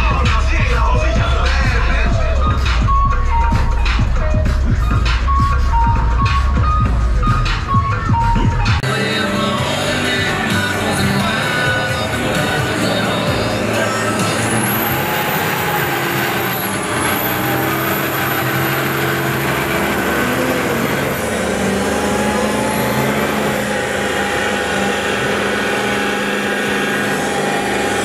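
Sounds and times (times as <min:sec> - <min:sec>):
diesel pickup engine revving: 0:00.0 - 0:28.0
high whistle: 0:01.8 - 0:08.8.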